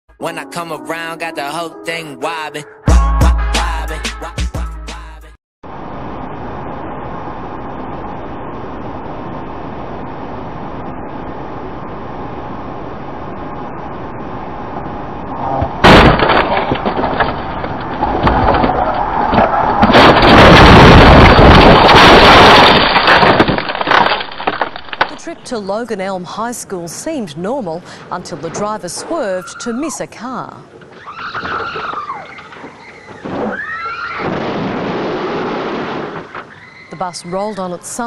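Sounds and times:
car crash impact: 15.6 - 25.3, 33.1 - 36.6
crashing cracking and breaking: 15.7 - 25.6, 31.0 - 36.8.

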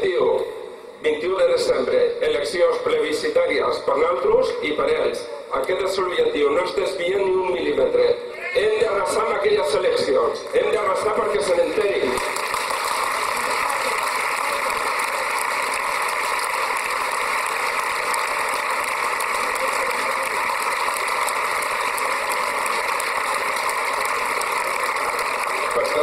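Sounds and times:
crowd applauding: 10.5 - 26.0.

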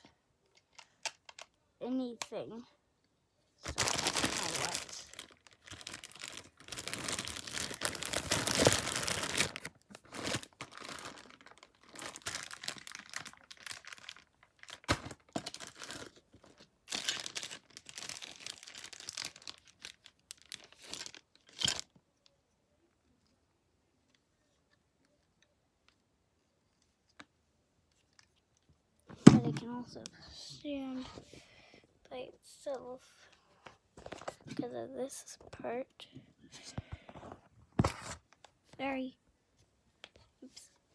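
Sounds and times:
plastic packaging crinkling and tearing: 3.6 - 21.9.

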